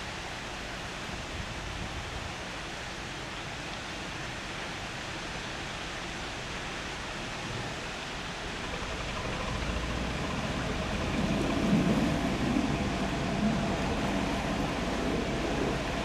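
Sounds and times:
boat engine rumble: 0:04.3 - 0:16.0
steady rushing noise: 0:07.0 - 0:16.0.

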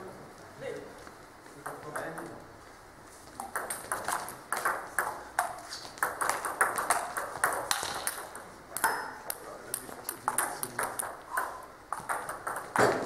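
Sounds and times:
table tennis ball clicking: 0:03.4 - 0:13.0.

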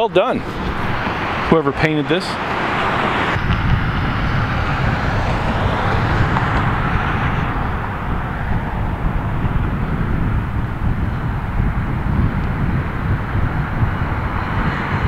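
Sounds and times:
fluttering low rumble: 0:03.4 - 0:15.0.

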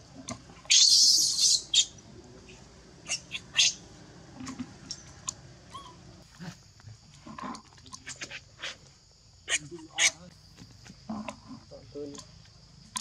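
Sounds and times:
baby monkey screaming: 0:00.6 - 0:02.0, 0:03.0 - 0:03.8, 0:05.7 - 0:06.0, 0:09.5 - 0:10.2.

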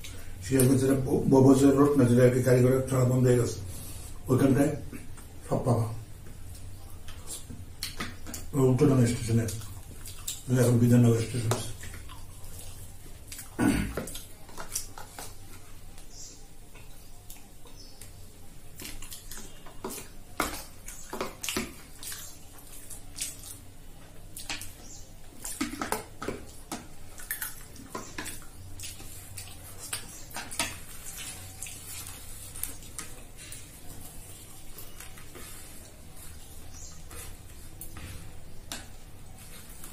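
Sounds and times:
wet mouth eating sounds: 0:09.3 - 0:15.5, 0:16.7 - 0:39.9.

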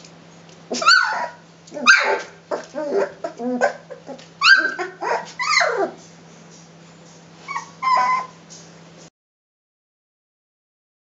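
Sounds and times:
puppies yelping: 0:00.7 - 0:06.2, 0:07.1 - 0:08.7.

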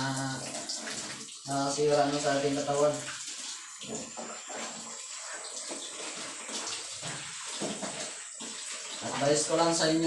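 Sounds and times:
water sloshing in a basin: 0:00.0 - 0:10.0
wet clothes scrubbed by hand: 0:03.3 - 0:09.6.

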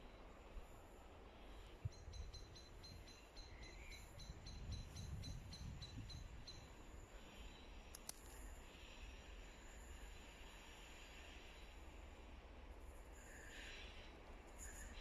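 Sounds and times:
small bird chirping: 0:01.8 - 0:07.7.

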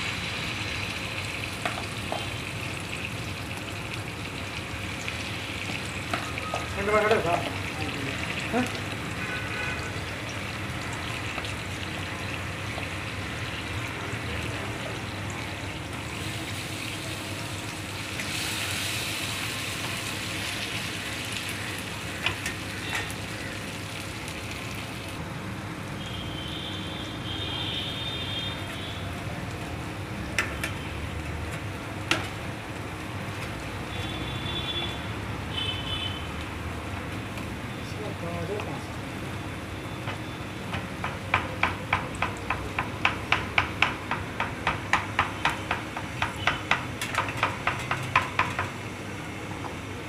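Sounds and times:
food sizzling in oil: 0:00.0 - 0:25.2
spatula knocking against pan: 0:40.0 - 0:48.8.

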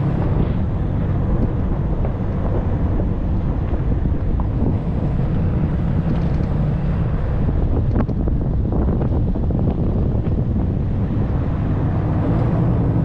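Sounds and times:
pickup truck driving on dirt: 0:00.0 - 0:13.0
wind buffeting microphone: 0:00.0 - 0:13.0.

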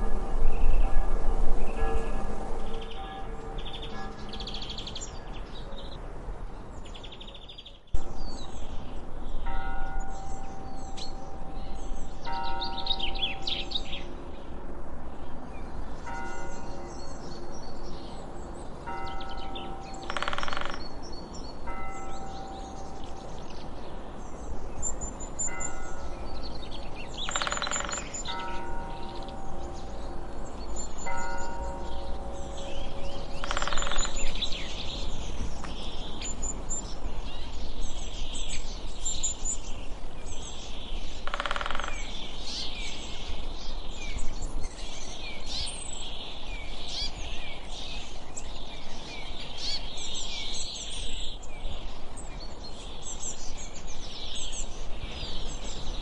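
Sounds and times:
soft sustained music notes: 0:00.0 - 0:07.0, 0:20.8 - 0:41.2
small birds chirping: 0:15.6 - 0:56.0.

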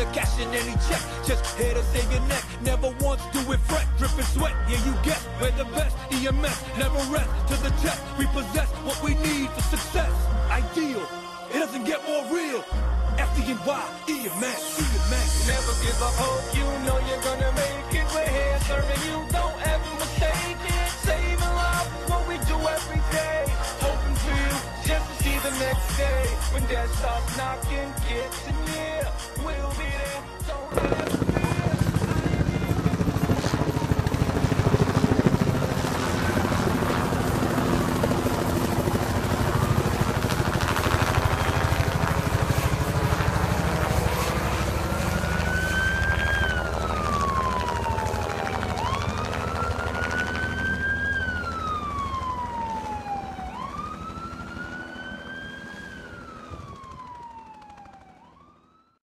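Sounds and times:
helicopter rotor and engine: 0:00.0 - 0:10.1, 0:14.6 - 0:58.8
siren wailing: 0:27.6 - 0:59.0.

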